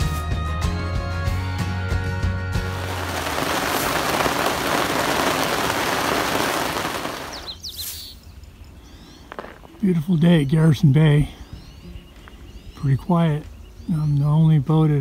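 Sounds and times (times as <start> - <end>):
heavy rain on water: 2.6 - 7.6.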